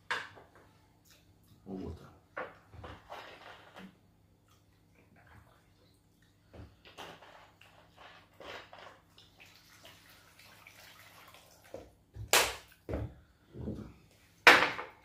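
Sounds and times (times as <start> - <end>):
liquid pouring into plastic basin: 8.5 - 11.9.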